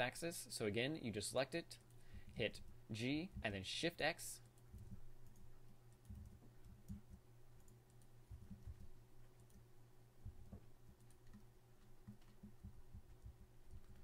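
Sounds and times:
low steady hum: 0:00.0 - 0:14.0
computer keyboard and mouse clicks: 0:04.5 - 0:09.6, 0:10.3 - 0:14.0.

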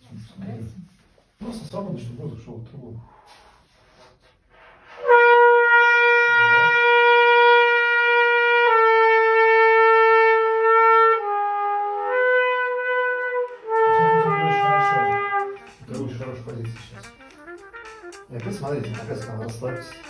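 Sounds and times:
trumpet holding a note: 0:04.8 - 0:15.8, 0:17.0 - 0:20.0.

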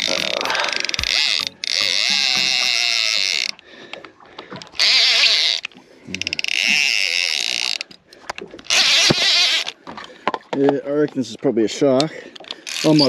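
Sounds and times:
fishing reel drag buzzing: 0:00.0 - 0:03.6, 0:04.8 - 0:08.0, 0:08.6 - 0:09.8, 0:12.6 - 0:13.0.

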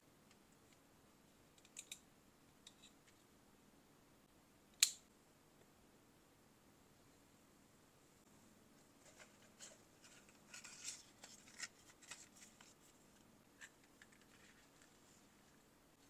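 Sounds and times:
notebook rustling and clicking: 0:09.0 - 0:15.1.

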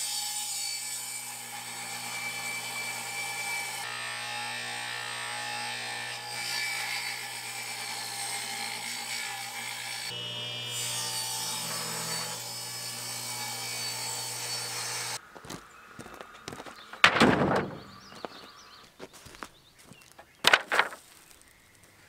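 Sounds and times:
wooden strips knocking: 0:16.5 - 0:18.4, 0:20.2 - 0:21.0.

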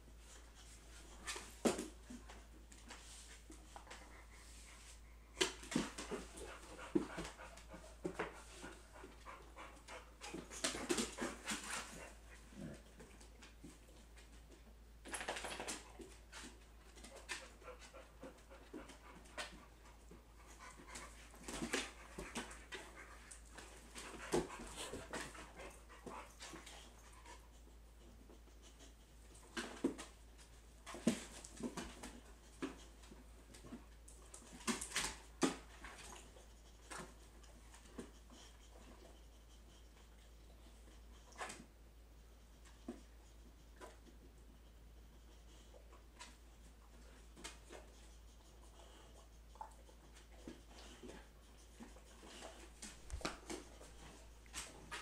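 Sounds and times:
dogs growling and panting: 0:03.6 - 0:13.6, 0:17.1 - 0:27.8
paws scuffling on wood floor: 0:50.2 - 0:55.0.

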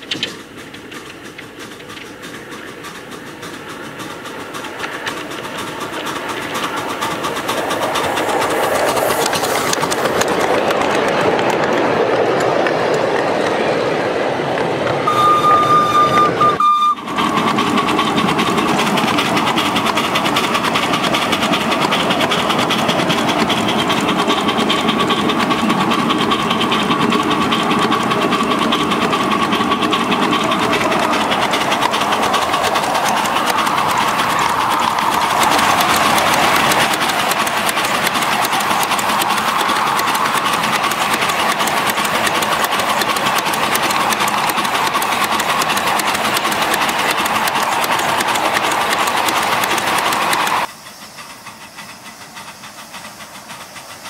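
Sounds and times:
steam locomotive exhaust beats: 0:00.0 - 0:54.0
steady high tone: 0:15.0 - 0:17.1.

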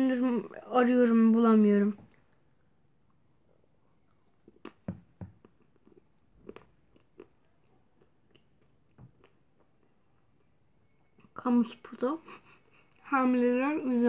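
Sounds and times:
chewing crunches: 0:04.1 - 0:10.5.

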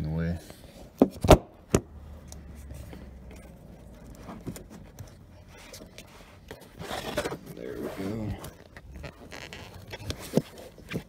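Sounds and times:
faint rustling: 0:02.0 - 0:11.0.

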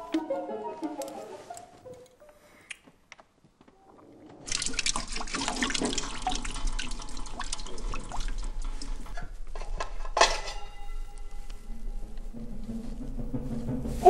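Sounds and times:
water splashing: 0:04.4 - 0:09.1
water trickling and dripping: 0:04.5 - 0:09.3.

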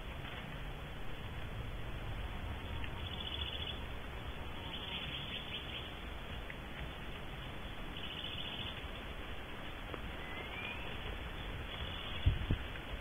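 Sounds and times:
steady low hum: 0:00.0 - 0:13.0
owl chicks chittering: 0:02.6 - 0:12.4.

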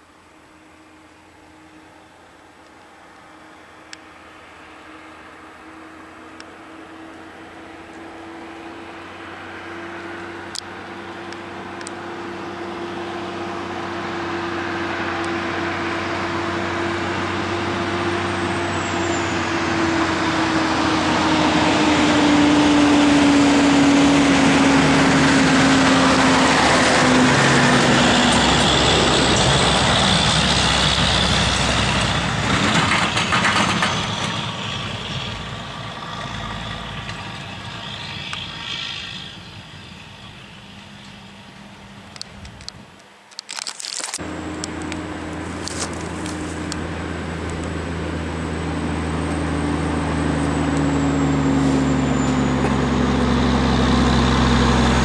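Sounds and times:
truck engine passing by: 0:03.3 - 0:42.2, 0:44.2 - 0:55.0.

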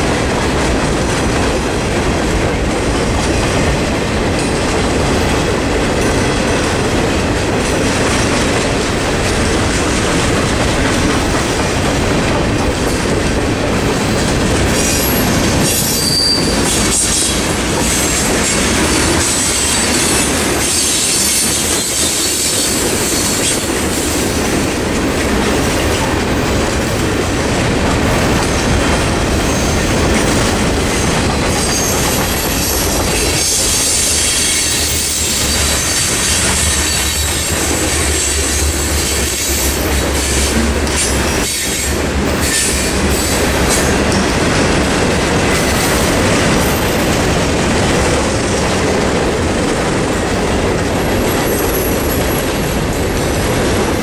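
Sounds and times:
freight train rumbling past: 0:00.0 - 0:54.0
high wheel squeal: 0:14.8 - 0:17.4, 0:31.6 - 0:38.4.

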